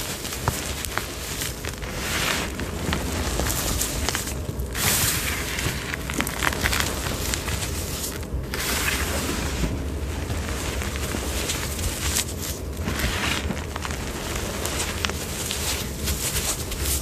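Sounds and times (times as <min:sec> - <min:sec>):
hands crushing chalk: 0:00.0 - 0:17.0.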